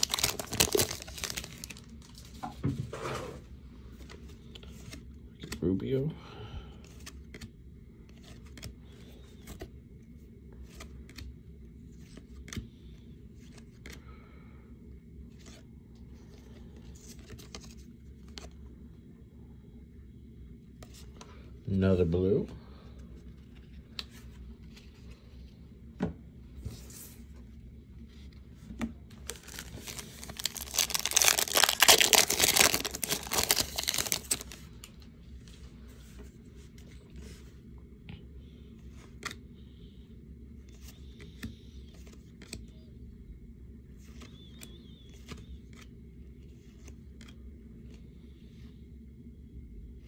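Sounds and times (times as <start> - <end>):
wrapper tearing and crinkling: 0.0 - 2.0, 29.2 - 34.6
cards clicking and sliding: 6.9 - 9.7.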